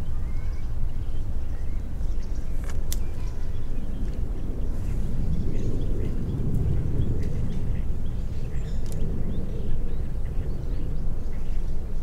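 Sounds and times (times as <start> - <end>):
faint bird chirps: 0.0 - 6.4
steady low rumble: 0.0 - 12.0.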